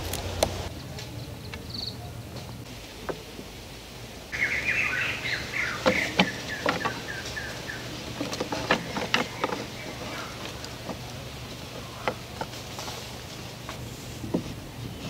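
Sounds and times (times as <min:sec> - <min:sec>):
bamboo sticks clicking and knocking: 0:00.0 - 0:01.8, 0:05.2 - 0:14.6
small bird chirping: 0:04.3 - 0:11.1.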